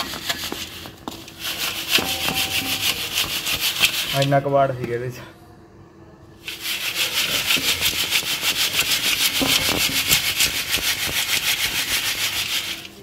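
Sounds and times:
wire-mesh sieve rattling: 6.5 - 12.9.

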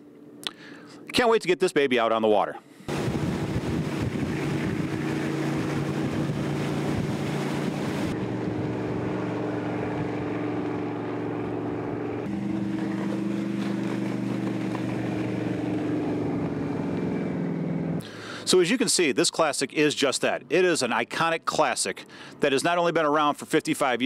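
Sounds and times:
powerboat engine droning: 2.6 - 24.0
water rushing: 2.9 - 19.1.

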